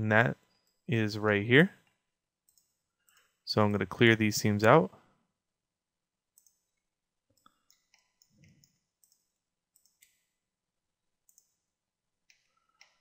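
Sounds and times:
computer mouse clicks: 1.8s - 3.3s, 6.4s - 10.3s, 11.3s - 11.6s, 12.3s - 13.0s.

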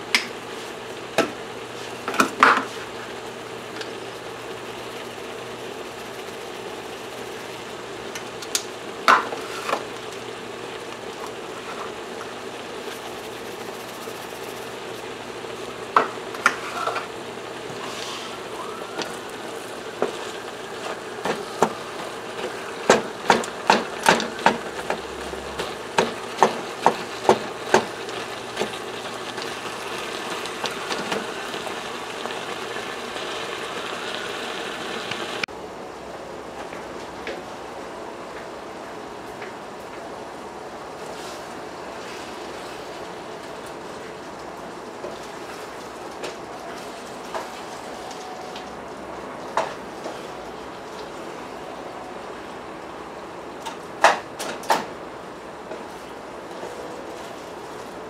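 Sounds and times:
meat sizzling in a skillet: 0.3s - 35.4s
wooden spatula knocking pan: 22.8s - 25.0s.

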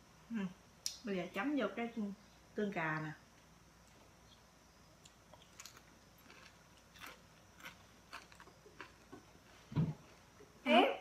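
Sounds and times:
crunching of fried chicken: 5.0s - 9.2s.

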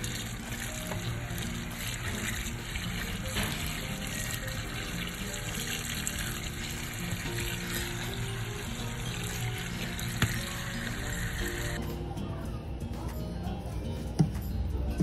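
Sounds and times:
tap water splashing: 0.0s - 11.1s.

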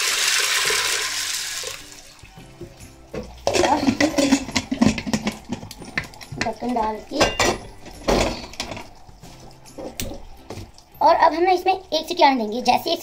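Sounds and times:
water pouring into a pot: 0.0s - 12.1s
metal lid clinking and scraping: 3.2s - 9.0s.

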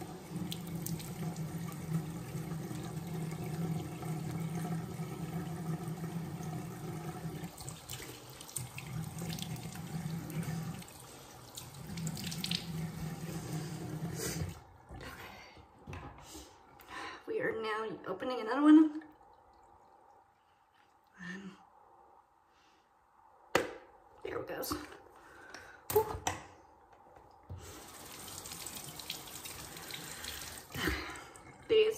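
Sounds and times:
sink tap running: 0.0s - 14.6s, 27.6s - 31.9s.

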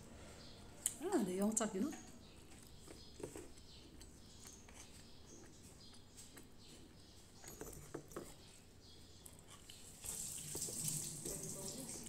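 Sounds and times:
quiet chewing: 2.0s - 10.7s.

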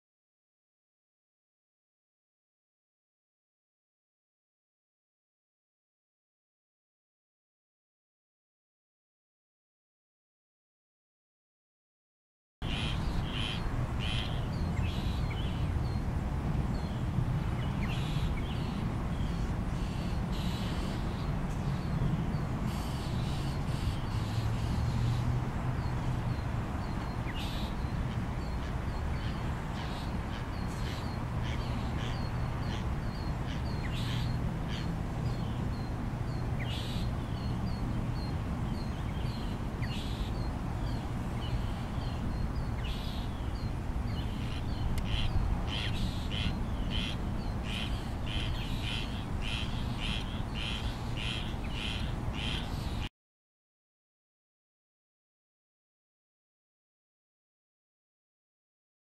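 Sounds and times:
bird giving harsh raspy calls: 44.4s - 52.7s.

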